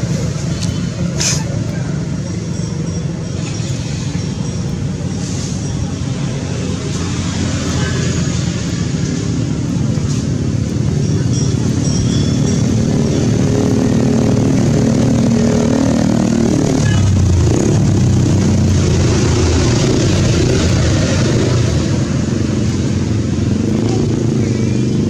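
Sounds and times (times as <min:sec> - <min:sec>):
motor engine running: 0:05.9 - 0:25.0.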